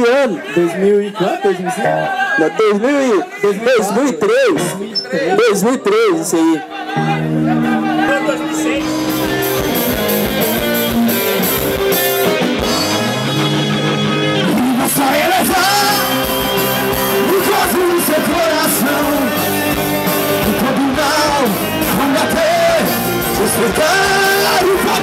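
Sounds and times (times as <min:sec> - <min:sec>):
rock band playing: 0:01.8 - 0:02.4, 0:06.8 - 0:25.0.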